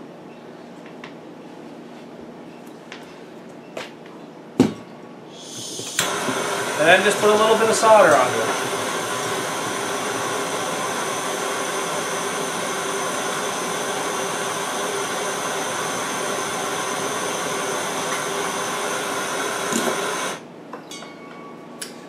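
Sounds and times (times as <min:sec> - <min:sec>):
gas torch hissing: 0:05.3 - 0:20.4.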